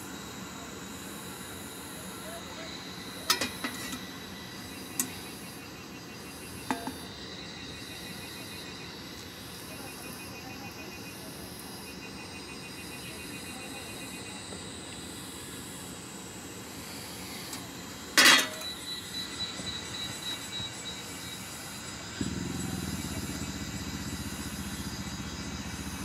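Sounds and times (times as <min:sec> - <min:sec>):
steady hiss: 0:12.6 - 0:26.0.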